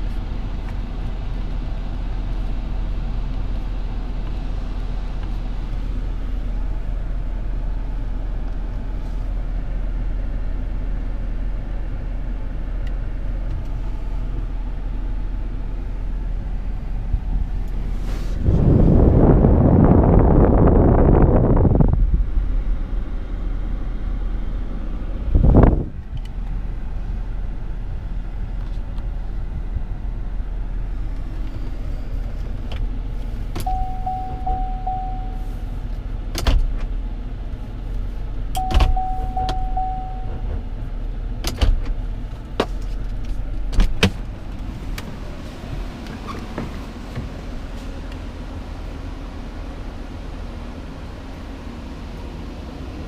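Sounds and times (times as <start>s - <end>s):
car cabin low rumble: 0.0s - 53.0s
loud whoosh: 17.8s - 22.1s.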